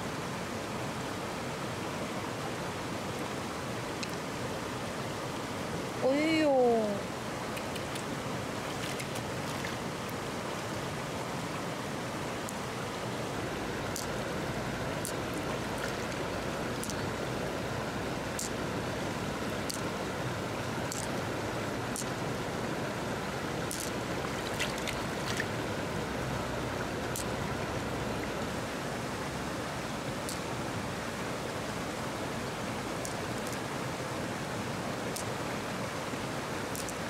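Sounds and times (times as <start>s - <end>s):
river rushing: 0.0s - 37.0s
faint clicks: 7.5s - 8.1s, 36.7s - 37.0s.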